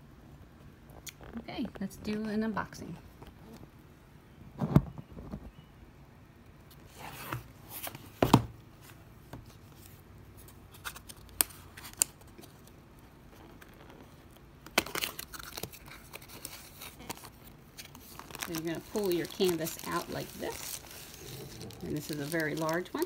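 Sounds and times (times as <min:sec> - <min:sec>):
cardboard sliding and scraping: 0:06.9 - 0:08.4
rustling: 0:08.8 - 0:23.0.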